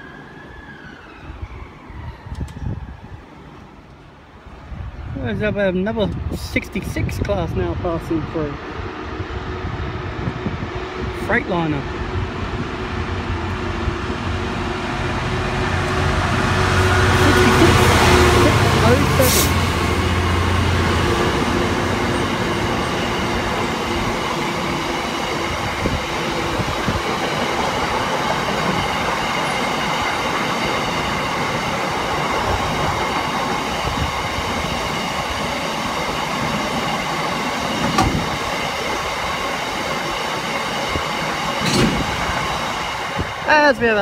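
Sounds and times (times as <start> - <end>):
freight train rolling past: 0.0 - 44.0.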